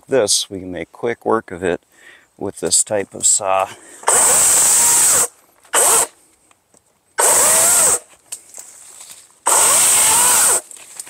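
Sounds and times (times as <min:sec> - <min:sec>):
electric chainsaw whining: 0:04.0 - 0:06.1, 0:07.2 - 0:08.1, 0:09.4 - 0:10.7.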